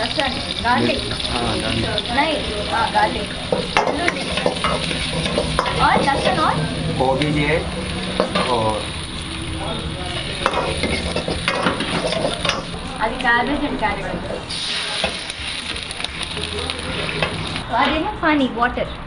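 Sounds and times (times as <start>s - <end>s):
vegetables sizzling in wok: 0.0s - 18.1s
metal ladle scraping wok: 2.3s - 12.8s, 14.1s - 17.7s.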